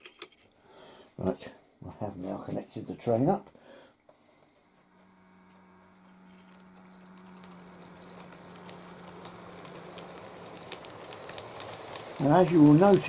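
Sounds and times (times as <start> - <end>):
model train motor hum: 4.4 - 13.0
wheels clicking over rail joints: 6.3 - 13.0.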